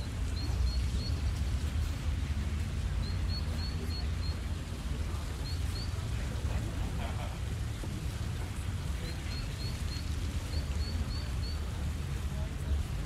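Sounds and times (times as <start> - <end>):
distant crowd voices: 0.0 - 13.0.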